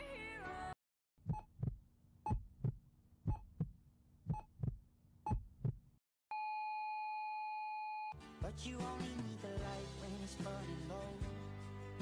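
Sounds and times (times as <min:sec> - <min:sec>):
heartbeat double thumps: 0:01.2 - 0:06.0.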